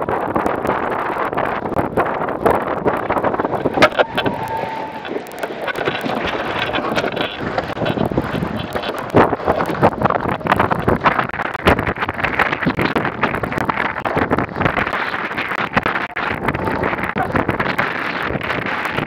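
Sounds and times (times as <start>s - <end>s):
wind buffeting microphone: 0.0s - 19.0s
water slapping against hull: 0.1s - 19.0s.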